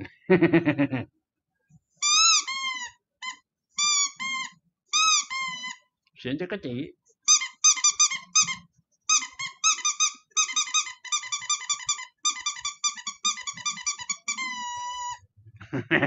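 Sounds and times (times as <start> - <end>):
high squeaky chirps: 2.0 - 5.8, 7.3 - 15.3.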